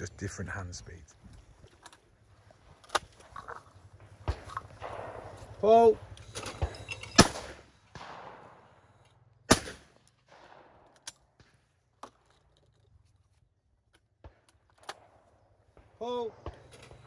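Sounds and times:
shotgun shots: 0:04.0 - 0:11.7, 0:14.2 - 0:17.0.

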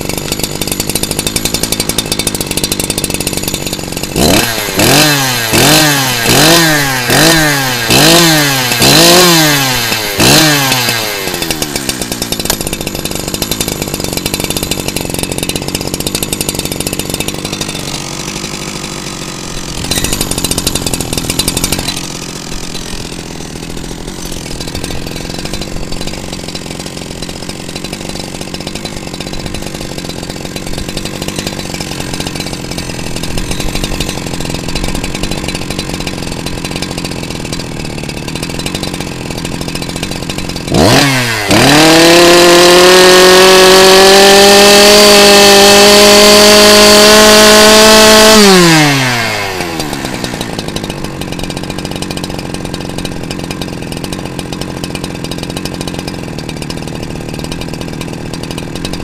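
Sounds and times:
chainsaw idling and revving: 0:00.0 - 0:59.0.

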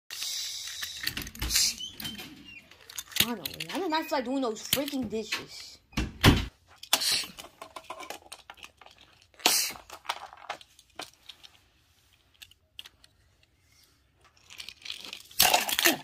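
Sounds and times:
toy cars clicking and clattering: 0:00.1 - 0:05.7, 0:06.8 - 0:16.0.

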